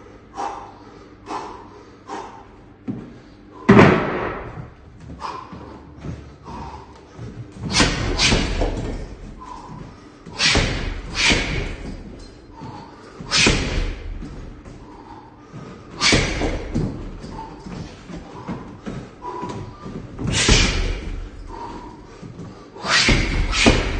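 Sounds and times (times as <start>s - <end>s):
punches thudding on heavy bag: 3.7s - 4.8s, 7.6s - 15.1s, 16.0s - 22.1s, 23.0s - 23.9s.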